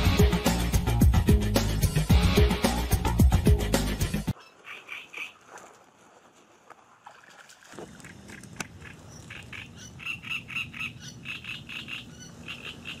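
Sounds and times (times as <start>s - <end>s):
frog croaking: 4.4s - 5.4s, 8.0s - 13.0s.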